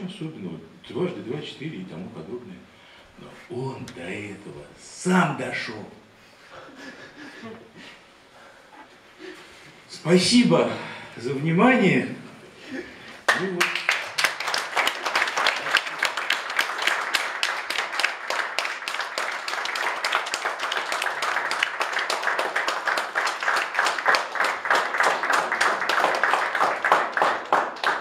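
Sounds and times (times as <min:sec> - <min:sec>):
audience applauding: 0:13.2 - 0:28.0.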